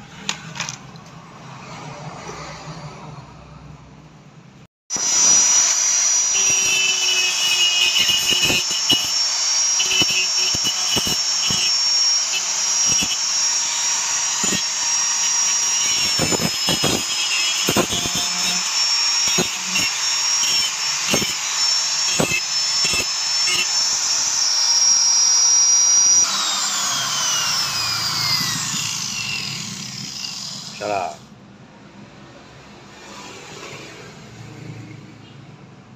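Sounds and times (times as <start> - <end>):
angle grinder whining: 4.9 - 31.3
grinding disc rasping on plastic: 5.6 - 24.9.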